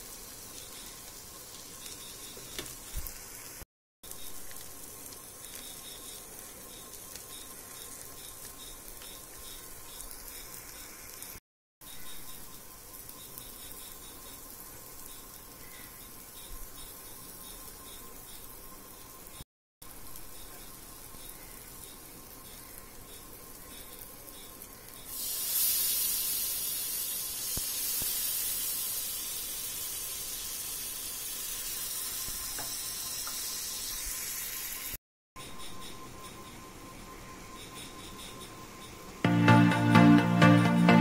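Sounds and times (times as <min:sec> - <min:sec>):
fish sizzling in oil: 0:00.0 - 0:11.4, 0:12.1 - 0:35.0
water poured into hot pan: 0:25.1 - 0:35.0.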